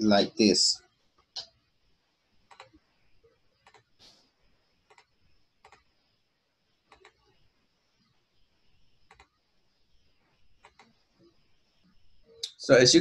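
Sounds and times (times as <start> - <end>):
computer mouse clicking: 2.4 - 2.8, 3.6 - 4.1, 4.8 - 6.0, 6.9 - 7.4, 9.0 - 9.4, 10.5 - 11.3.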